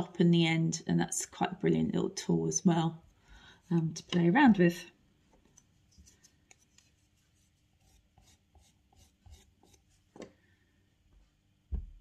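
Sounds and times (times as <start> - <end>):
low thump: 11.7 - 12.0.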